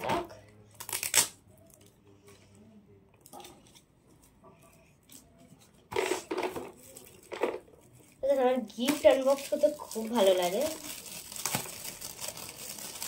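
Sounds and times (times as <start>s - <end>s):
gift wrap paper crinkling: 6.0s - 13.0s.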